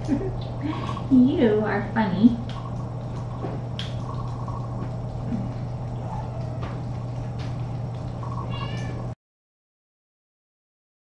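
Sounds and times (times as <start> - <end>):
steady low hum: 0.0 - 9.2
kitten mewing: 5.3 - 6.8, 8.3 - 9.1.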